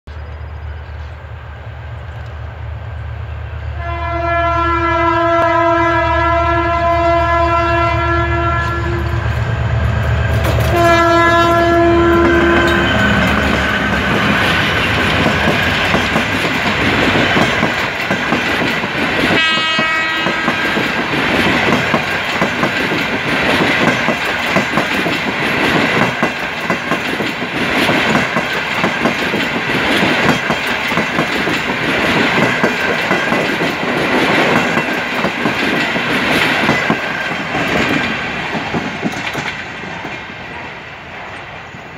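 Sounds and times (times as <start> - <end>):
diesel locomotive engine rumbling: 0.1 - 41.9
train horn blasts: 3.7 - 9.4, 10.4 - 14.3, 19.3 - 20.7.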